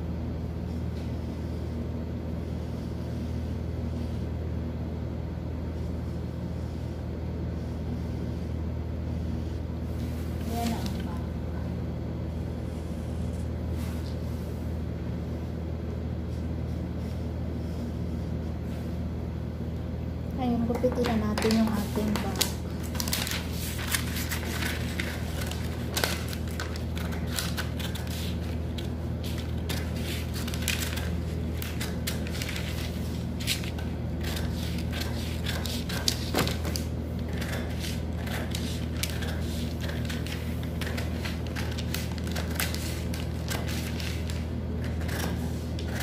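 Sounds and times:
steady low hum: 0:00.0 - 0:46.0
paper rustling: 0:10.0 - 0:11.2, 0:20.9 - 0:46.0
scissors snipping paper: 0:21.0 - 0:46.0.

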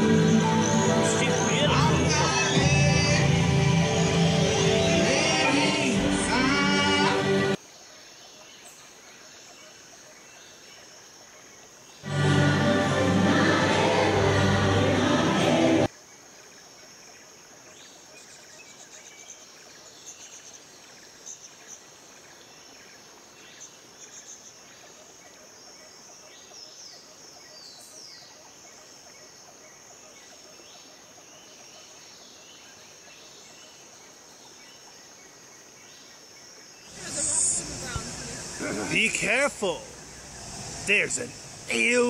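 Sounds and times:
music: 0:00.0 - 0:07.6, 0:12.0 - 0:15.9
insect chirring: 0:33.7 - 0:42.0.

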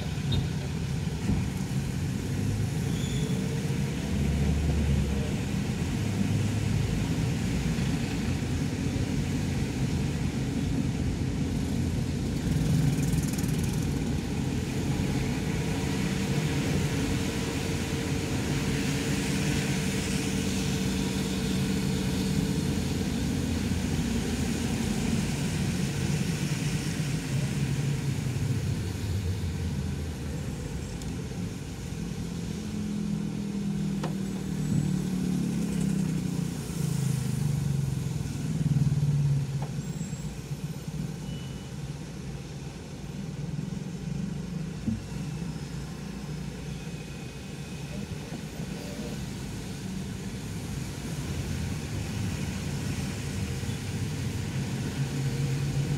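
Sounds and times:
engine and road rumble: 0:00.0 - 0:55.9
tyres hissing on wet road: 0:00.0 - 0:55.9.

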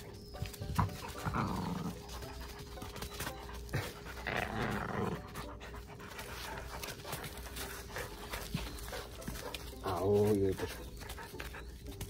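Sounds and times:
dogs making grainy play noises: 0:00.0 - 0:12.0
dogs panting: 0:00.0 - 0:12.0.

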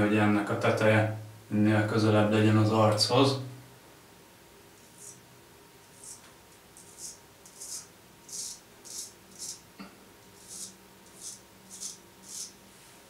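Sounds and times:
razor scraping stubble: 0:04.8 - 0:05.2, 0:05.9 - 0:09.7, 0:10.4 - 0:12.6.

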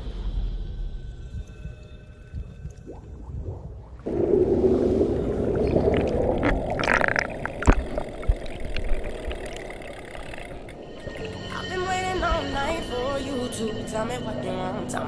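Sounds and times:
churning bubbling underwater water: 0:01.3 - 0:11.5.

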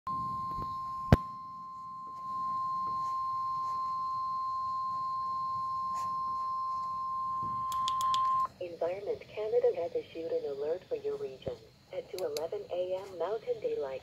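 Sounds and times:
high alarm tone: 0:00.1 - 0:08.5
sharp click: 0:07.7 - 0:08.3.

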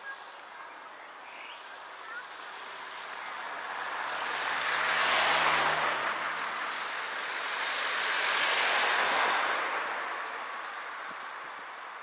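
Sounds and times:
car passing by: 0:02.5 - 0:11.3.

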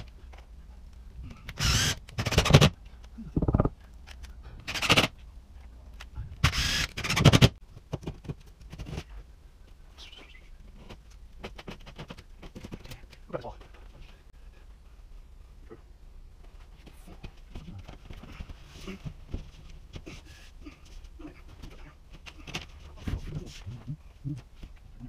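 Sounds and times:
cordless drill driving screws: 0:01.5 - 0:02.7, 0:06.4 - 0:07.5.

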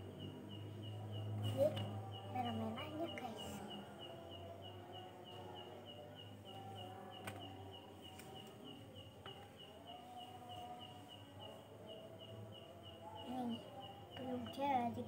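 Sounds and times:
faint steady chirping: 0:00.0 - 0:15.0.

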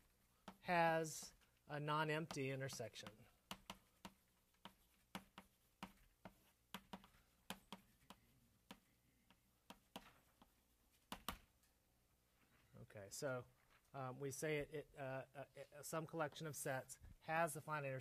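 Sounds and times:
writing taps on a surface: 0:00.4 - 0:00.6, 0:02.1 - 0:11.5.

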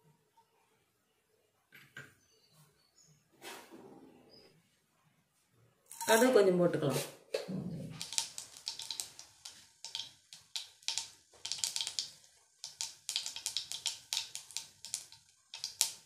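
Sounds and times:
seeds popping in hot oil: 0:05.9 - 0:06.2, 0:07.9 - 0:16.0.

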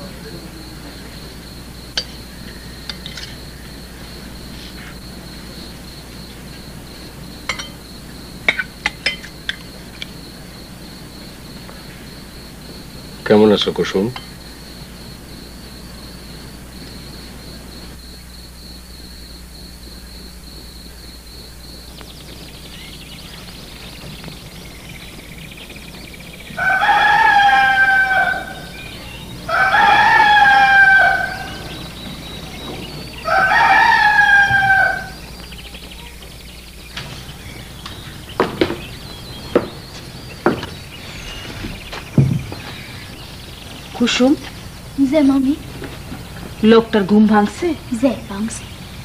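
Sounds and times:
high cricket trill: 0:00.0 - 0:49.0
rooster crowing: 0:25.8 - 0:36.2.

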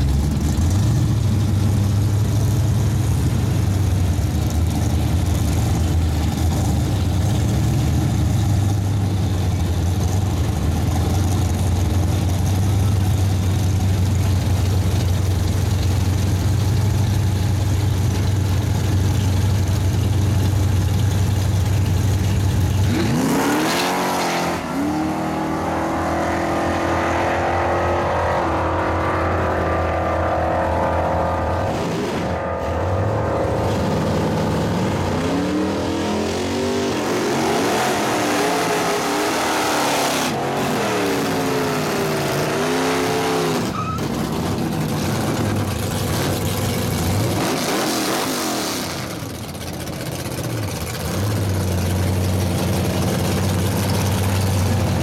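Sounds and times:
race cars idling rumble: 0:00.0 - 0:23.2, 0:43.6 - 0:47.5, 0:48.1 - 0:55.0
race cars revving and accelerating: 0:22.8 - 0:49.3
car revving during burnout: 0:22.8 - 0:49.4.

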